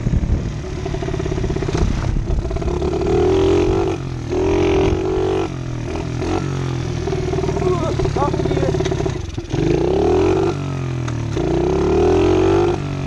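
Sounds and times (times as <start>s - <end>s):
motorbike engine revving: 0.0s - 13.0s.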